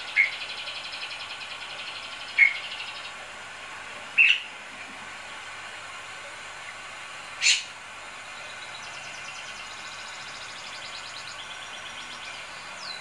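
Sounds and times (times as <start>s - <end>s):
bird calling sharply: 7.4s - 7.7s.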